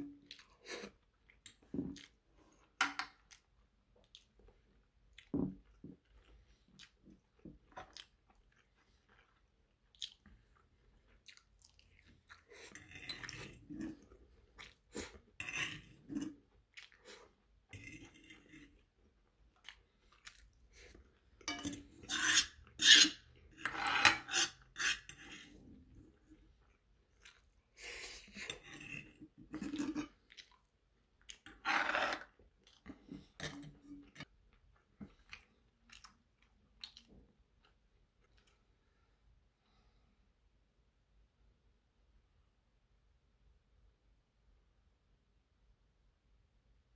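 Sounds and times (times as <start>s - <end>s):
close-up chewing: 0.1s - 21.5s, 26.1s - 31.6s, 32.2s - 38.6s
metal fork scraping frying pan: 21.5s - 25.6s, 31.6s - 32.3s.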